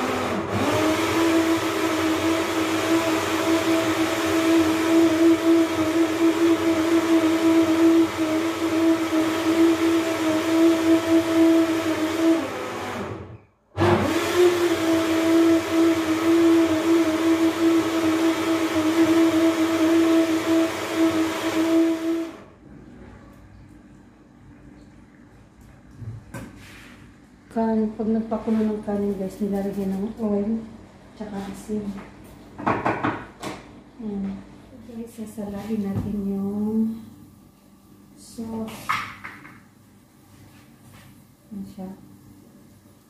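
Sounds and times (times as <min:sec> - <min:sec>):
electric blender running: 0:00.0 - 0:22.6.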